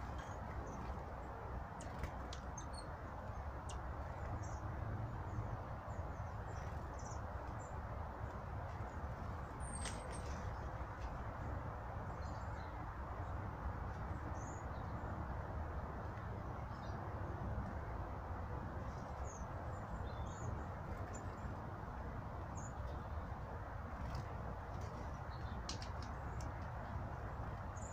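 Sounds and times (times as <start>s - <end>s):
small birds chirping: 0.0s - 15.4s, 18.8s - 21.7s, 22.4s - 27.9s.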